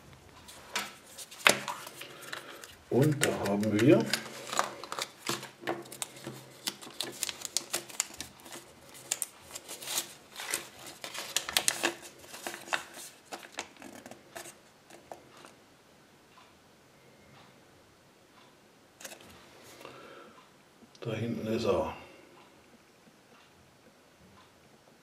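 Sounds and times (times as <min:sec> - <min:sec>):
plastic and paper packaging crinkling: 0:00.4 - 0:15.5.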